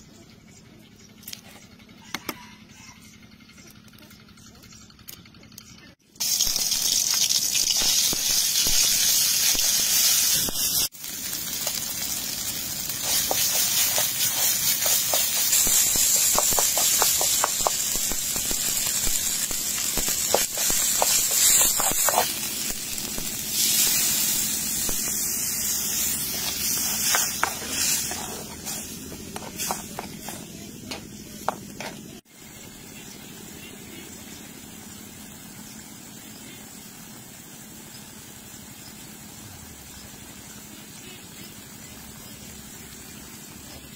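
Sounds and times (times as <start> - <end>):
paste sizzling in hot oil: 6.2 - 43.9
metal spoon stirring and scraping: 12.9 - 22.4, 26.0 - 30.8.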